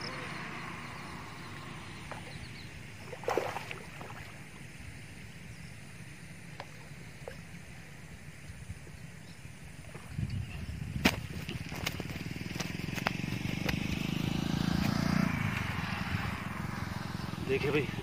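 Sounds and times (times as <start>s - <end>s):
steady background hiss: 0.0s - 9.9s
water splashing at bank: 2.1s - 4.6s.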